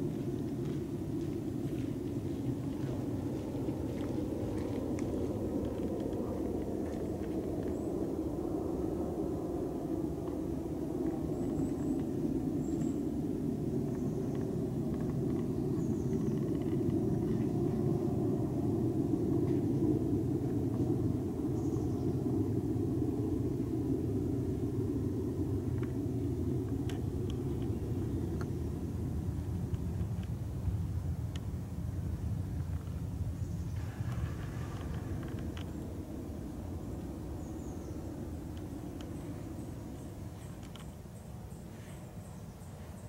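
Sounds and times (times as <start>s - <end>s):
steady low rumble: 0.0s - 43.0s
light clicks: 40.4s - 41.0s.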